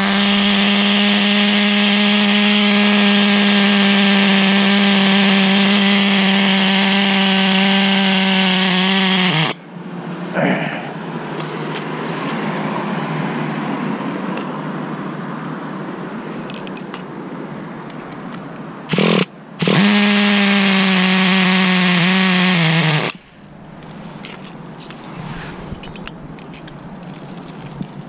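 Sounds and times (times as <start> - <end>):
rc car engine high-revving whine: 18.9 - 23.2.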